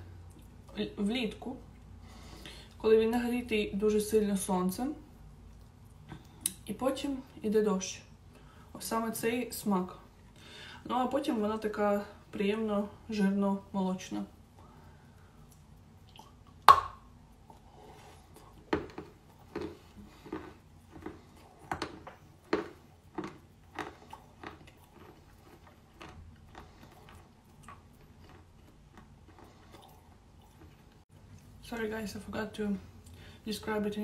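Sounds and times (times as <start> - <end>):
chewing crunches: 17.3 - 31.5.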